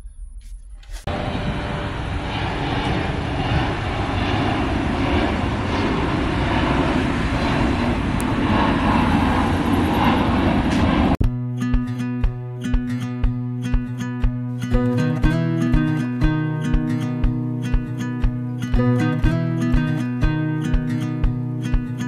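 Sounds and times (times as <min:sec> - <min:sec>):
jet airliner engines rushing: 0:01.0 - 0:11.2
acoustic guitar music: 0:11.2 - 0:22.0.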